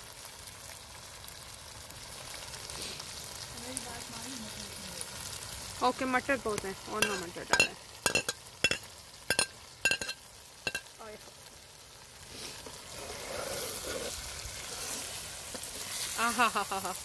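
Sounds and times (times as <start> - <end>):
vegetables sizzling in frying pan: 0.0 - 17.0
metal clinks against pan: 7.0 - 10.9
spatula stirring: 7.0 - 10.9, 12.8 - 16.2.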